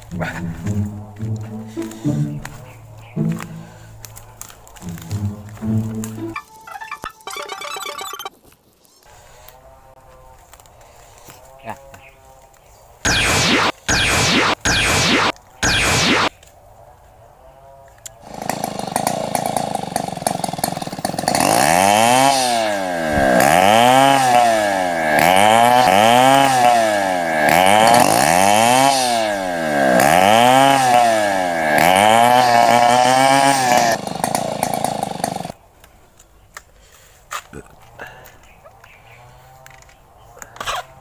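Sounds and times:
small engine revving: 0.0s - 6.3s, 13.1s - 16.3s, 17.4s - 35.6s.

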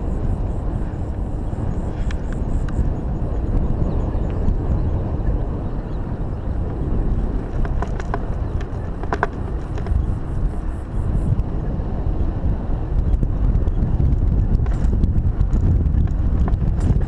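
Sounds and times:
bike clicks and rattles: 0.0s - 10.7s, 13.0s - 17.0s
tyres on dirt: 0.0s - 11.2s
wind rumble on microphone: 0.0s - 17.0s.

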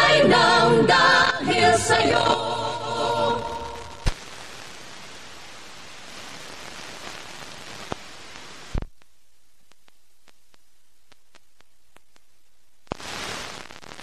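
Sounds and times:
radio static hiss: 0.0s - 14.0s
loud pop: 4.0s - 4.3s.

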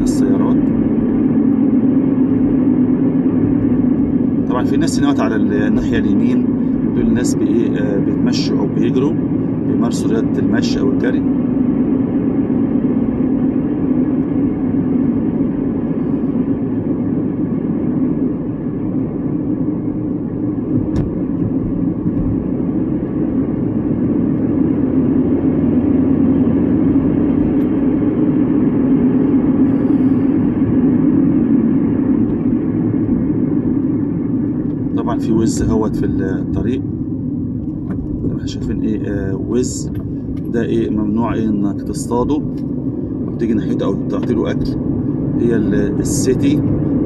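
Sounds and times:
car cabin road noise: 0.0s - 17.4s, 18.0s - 47.0s.

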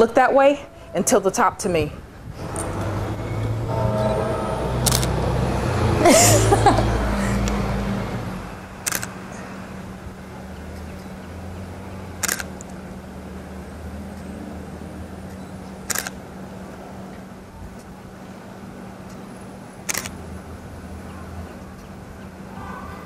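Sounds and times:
camera shutter clicks: 4.8s - 5.1s, 8.8s - 9.2s, 12.2s - 12.7s, 15.9s - 16.2s, 19.9s - 20.2s.

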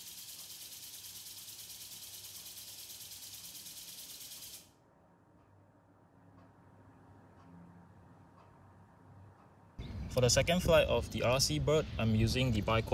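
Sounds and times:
high-pitched fluttering hiss: 0.0s - 4.7s.

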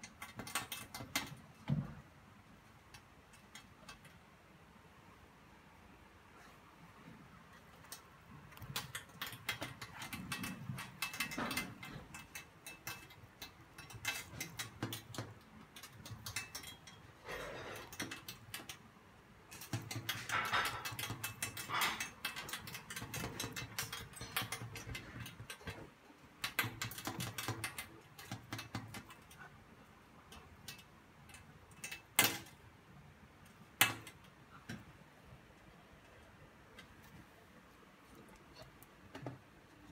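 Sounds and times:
claws tapping on glass: 8.6s - 18.9s, 26.4s - 29.5s.

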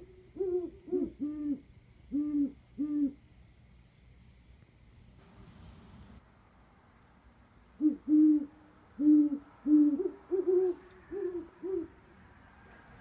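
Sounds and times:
owls hooting: 0.0s - 3.2s, 7.8s - 12.0s.

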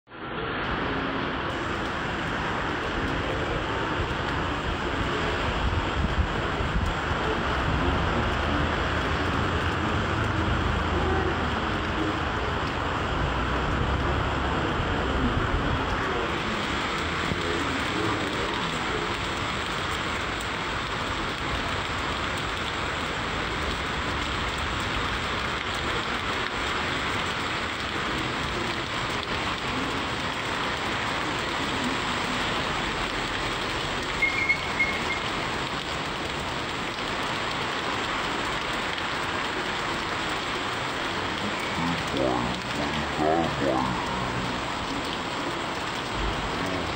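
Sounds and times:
heavy rain on street and awnings: 0.1s - 46.9s
high-pitched squeak: 34.2s - 35.2s.

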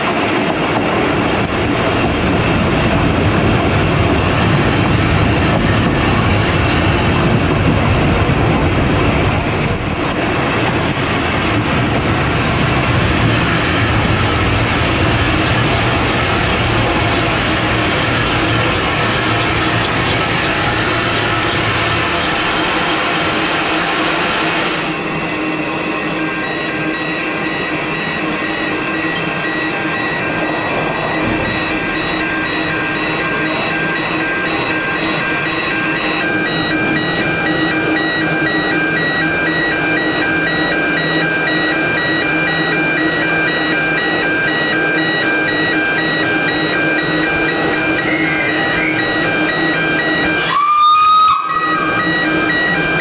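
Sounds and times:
train rolling noise: 0.0s - 53.0s
high pulsing tones: 11.3s - 50.6s.

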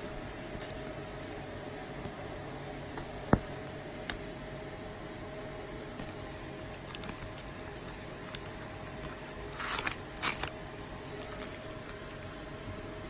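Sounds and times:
plastic packaging crinkling: 6.6s - 13.0s.

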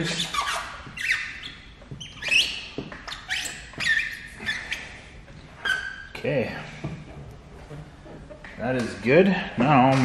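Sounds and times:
squeegee squeaking on film: 0.0s - 6.7s.

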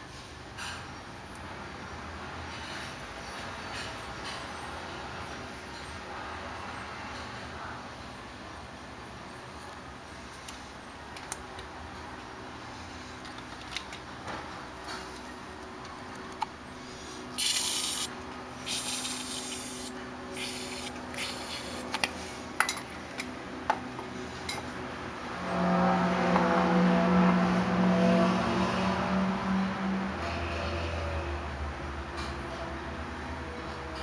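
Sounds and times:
aerosol spray hissing: 17.4s - 21.8s.

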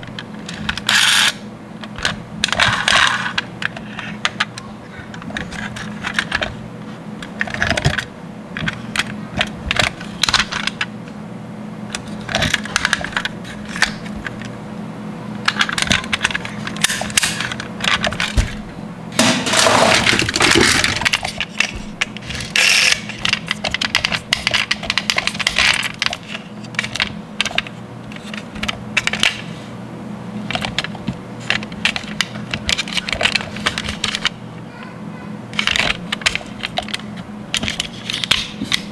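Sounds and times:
toy cars clattering in crate: 19.2s - 21.6s.

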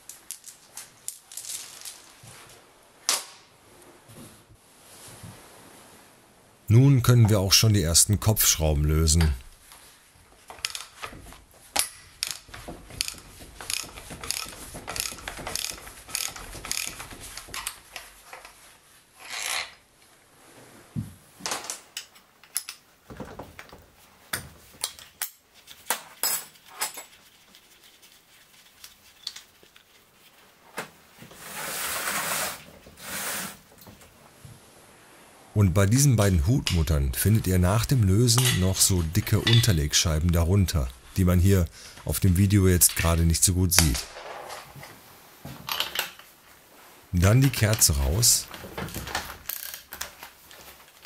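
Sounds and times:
ratchet wrench clicking: 13.0s - 17.0s
tool clinks: 39.4s - 39.8s.

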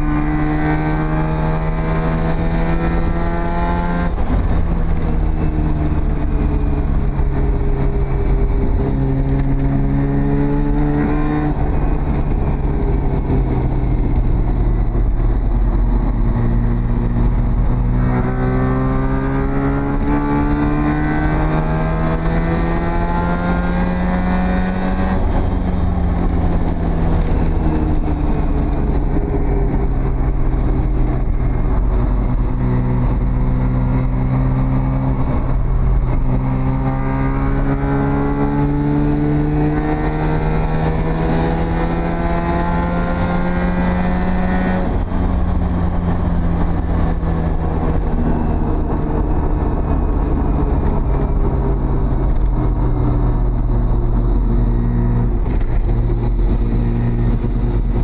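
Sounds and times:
rotary engine accelerating: 0.0s - 58.0s.

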